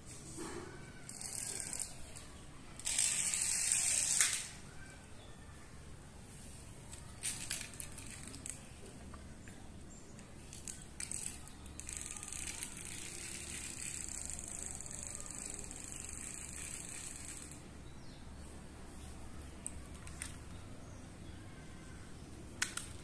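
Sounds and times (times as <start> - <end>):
plastic toy clicking and rattling: 1.0 - 4.6, 6.9 - 8.8, 10.2 - 17.7, 19.6 - 20.6, 22.6 - 23.0
toy helicopter whirring: 1.0 - 4.6, 6.9 - 8.6, 10.5 - 17.7.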